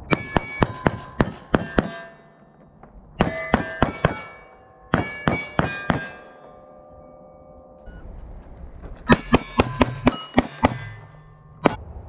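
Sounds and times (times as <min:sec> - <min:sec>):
bullets ringing off steel targets: 0:00.0 - 0:02.6, 0:03.2 - 0:07.9, 0:09.0 - 0:11.8.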